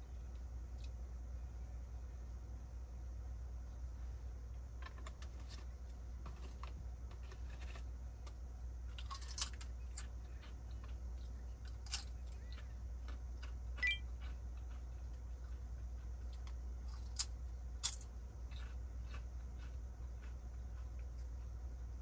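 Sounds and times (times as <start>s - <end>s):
low steady hum: 0.0s - 22.0s
chips crunching: 8.9s - 21.5s.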